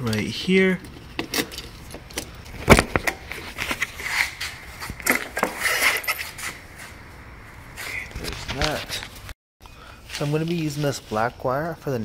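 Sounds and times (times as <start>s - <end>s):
motorcycle seat rattling and scraping: 0.9s - 6.6s.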